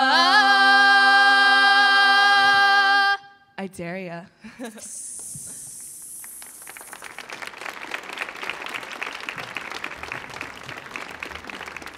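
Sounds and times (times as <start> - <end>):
singers' sung hiss: 4.7 - 7.0
audience applauding: 6.0 - 11.9.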